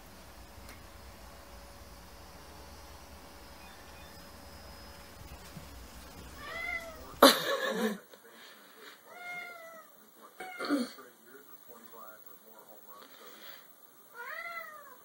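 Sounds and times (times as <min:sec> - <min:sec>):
cat meowing: 0:06.4 - 0:07.1, 0:09.1 - 0:10.7, 0:14.1 - 0:15.0.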